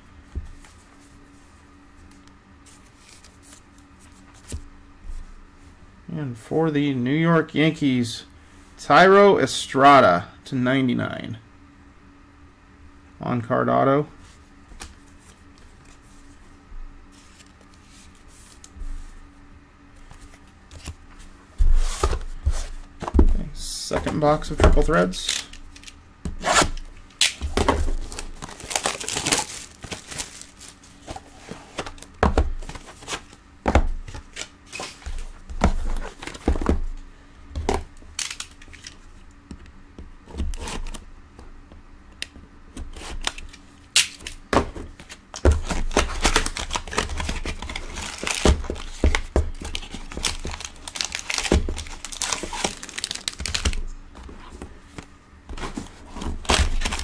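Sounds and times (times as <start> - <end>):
plastic wrapping tearing and crinkling: 25.2 - 31.0, 38.2 - 39.0, 45.6 - 54.0, 56.3 - 57.0.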